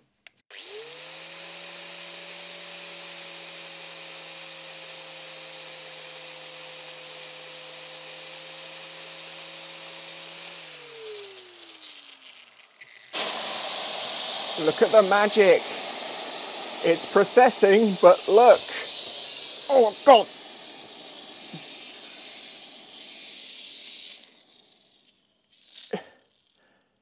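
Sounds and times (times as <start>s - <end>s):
angle grinder whine: 0.5s - 26.7s
loud hiss: 13.1s - 26.1s.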